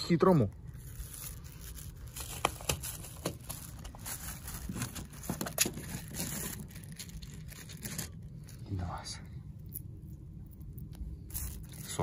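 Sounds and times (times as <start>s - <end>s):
low steady rumble: 0.0s - 12.0s
plastic bags rustling: 0.3s - 8.6s, 11.2s - 12.0s.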